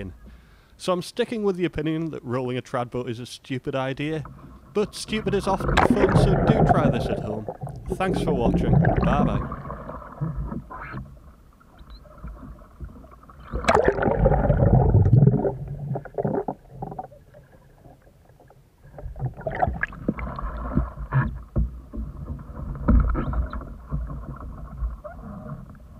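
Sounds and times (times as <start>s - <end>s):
water splashing and sloshing: 4.0s - 25.9s
canoe capsizing splash: 4.4s - 11.2s, 12.1s - 16.7s
muffled underwater gurgling: 4.7s - 11.1s, 11.8s - 18.0s.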